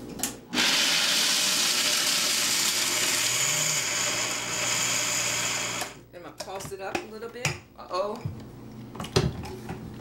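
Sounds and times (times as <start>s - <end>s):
blender motor grinding nuts: 0.5s - 6.0s.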